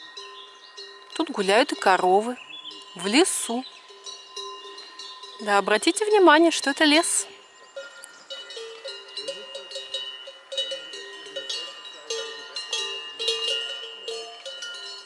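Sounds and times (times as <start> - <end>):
cowbells clanking: 0.0 - 15.0.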